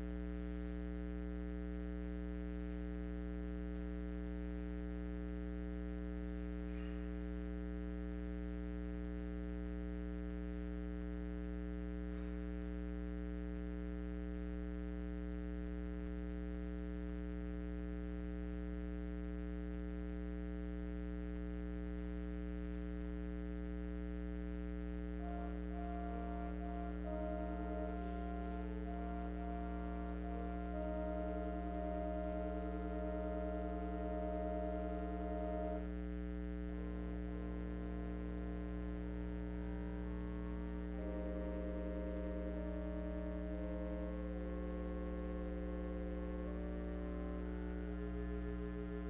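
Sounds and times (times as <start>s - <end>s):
electrical mains hum: 24.7s - 49.0s
instrumental music: 25.2s - 35.9s, 36.7s - 49.0s.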